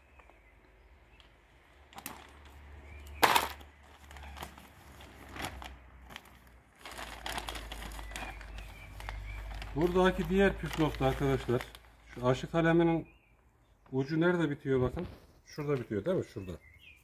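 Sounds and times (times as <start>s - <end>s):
plastic bag rustling: 3.2s - 12.5s.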